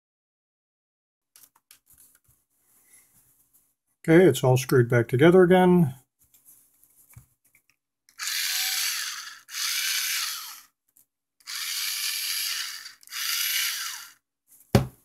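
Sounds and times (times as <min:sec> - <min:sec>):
cordless screwdriver motor running: 0:08.1 - 0:10.7, 0:11.4 - 0:14.2.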